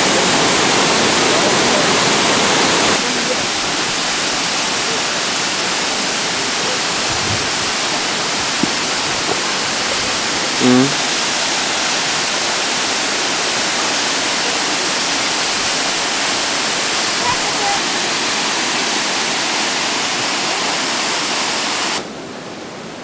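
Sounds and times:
waterfall rushing: 0.0 - 23.0
short pitched call: 10.6 - 11.1.

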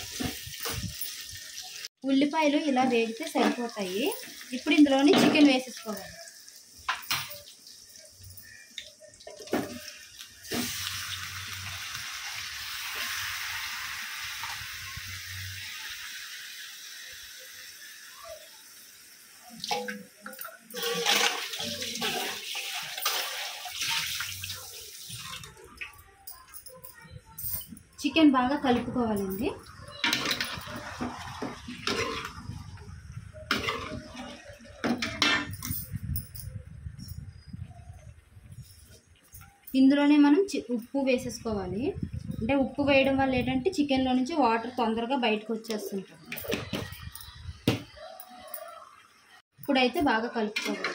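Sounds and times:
chicken sizzling in hot oil: 0.0 - 25.2, 29.7 - 35.3
ladle scraping metal pan: 20.7 - 23.6, 30.0 - 32.5, 33.5 - 35.5.

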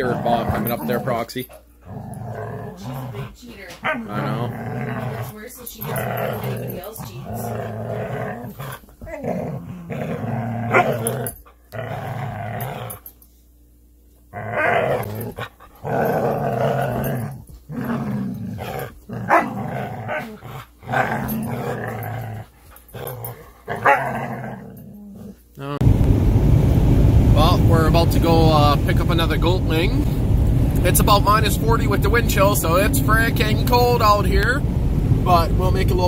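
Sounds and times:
dogs growling in play: 0.0 - 13.3, 14.3 - 25.6
dog barks: 3.8 - 4.1, 19.2 - 21.1, 23.7 - 24.3.

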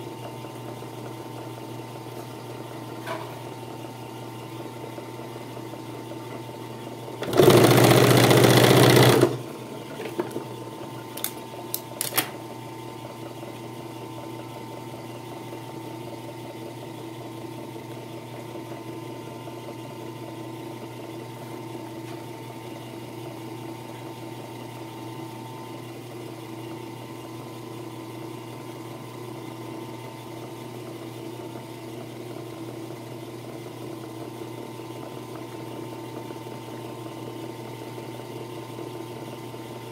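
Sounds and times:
motor hum: 0.0 - 27.9
sewing machine stitching leather: 7.2 - 9.5.

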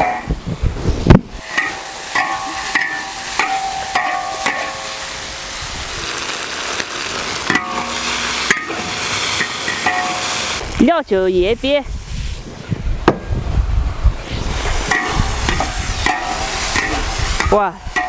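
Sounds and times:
metal spatula scraping wok: 1.4 - 5.4, 14.4 - 18.0
food sizzling: 1.4 - 12.5, 14.2 - 18.0.

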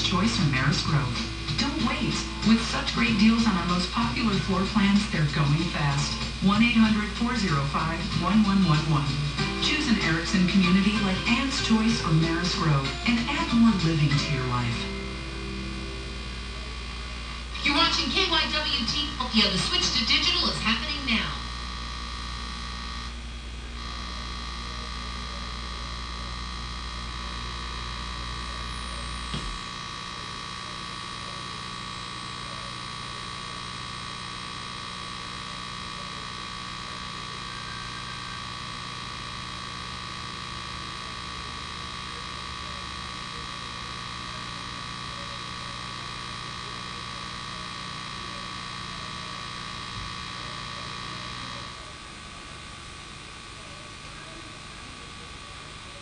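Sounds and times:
electrical buzz and hum from speaker: 0.0 - 56.0.

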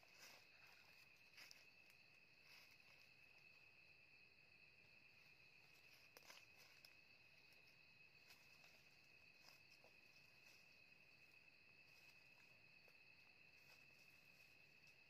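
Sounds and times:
night insects trilling: 0.0 - 15.0.

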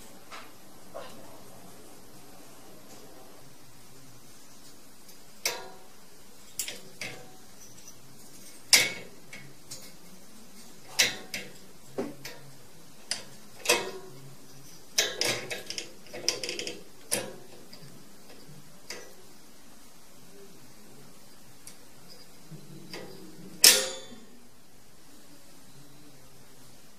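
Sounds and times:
metal cage latch clicking and rattling: 8.4 - 10.0, 10.9 - 11.6, 13.1 - 14.2, 15.0 - 17.9, 22.9 - 24.2.

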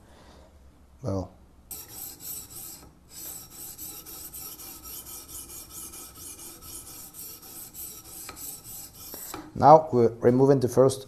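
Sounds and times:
sharpening stone rasping on knife: 1.7 - 9.5.

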